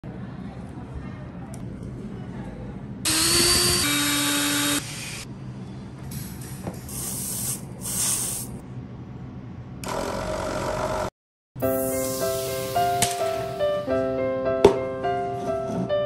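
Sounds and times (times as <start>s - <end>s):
small electric motor whirring: 3.1s - 5.3s
short bursts of hissing: 6.1s - 8.6s, 11.6s - 13.8s.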